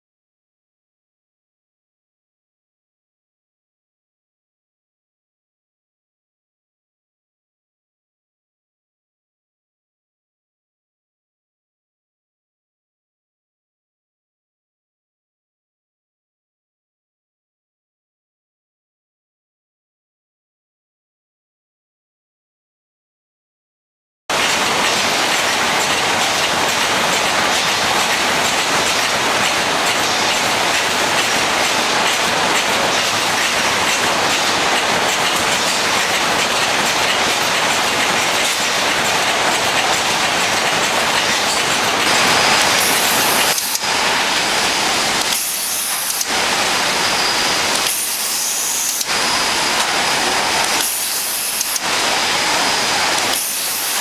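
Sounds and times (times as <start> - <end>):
packaging machinery running: 24.3 - 54.0
rhythmic machine hiss: 42.1 - 54.0.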